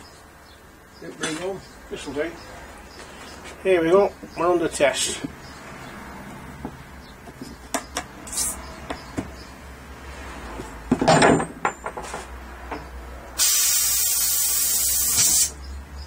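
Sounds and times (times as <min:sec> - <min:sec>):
pipe fitting dropping on wood: 0:10.9 - 0:12.2
steady loud hiss: 0:13.4 - 0:15.6.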